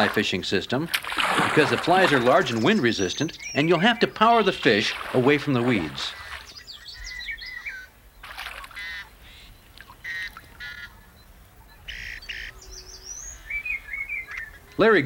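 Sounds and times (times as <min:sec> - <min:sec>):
harsh bird calls: 0:00.0 - 0:15.0
thin warbling bird whistles: 0:06.1 - 0:14.8.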